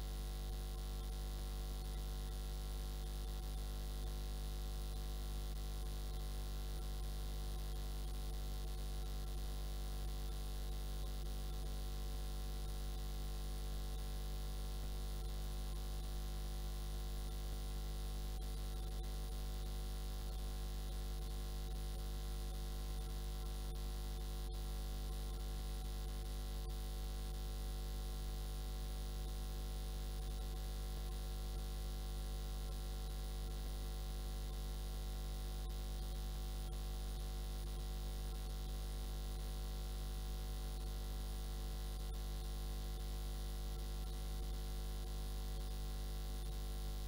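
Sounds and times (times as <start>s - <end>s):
electrical mains hum: 0.0s - 27.4s.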